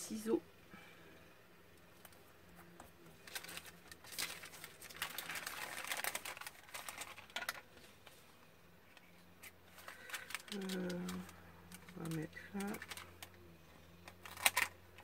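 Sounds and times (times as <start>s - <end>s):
baking paper crinkling: 1.9s - 8.3s, 8.9s - 13.4s, 14.0s - 15.0s.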